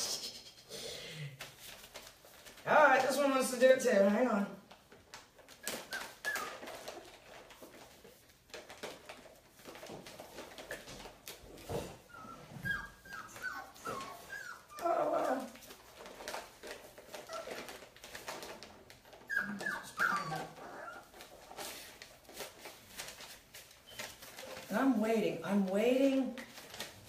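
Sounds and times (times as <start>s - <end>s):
puppies whimpering: 5.6s - 7.1s, 12.0s - 15.5s, 19.2s - 21.4s
puppy crying: 5.6s - 7.1s, 12.0s - 15.5s, 19.2s - 21.3s.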